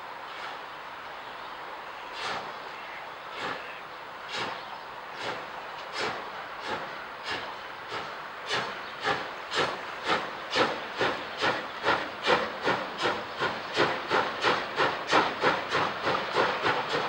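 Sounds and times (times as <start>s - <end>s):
steam locomotive chuffing: 2.0s - 17.0s.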